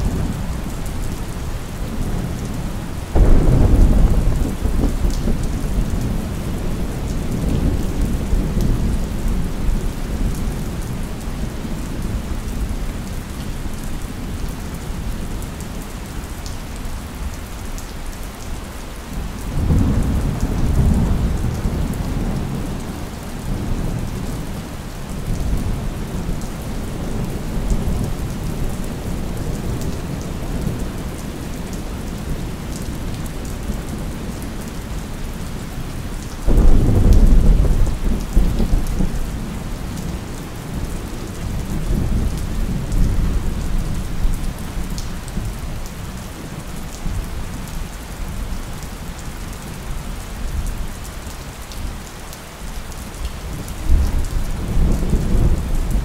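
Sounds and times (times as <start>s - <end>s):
steady rain falling: 0.0s - 56.0s
rolling thunder: 3.1s - 10.4s, 36.5s - 45.5s
sharp thunderclap: 3.2s - 6.0s, 36.5s - 39.1s.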